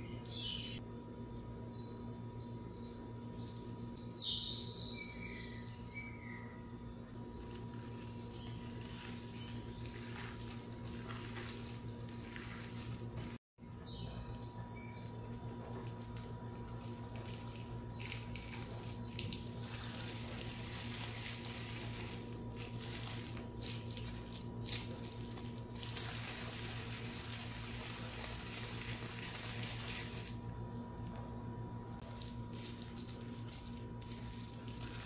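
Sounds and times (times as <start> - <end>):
steady low hum: 0.0 - 35.0
plastic gloves crinkling: 7.2 - 13.4, 15.0 - 30.5, 32.0 - 35.0
wet squishing of minced meat: 7.3 - 13.4, 15.5 - 30.3.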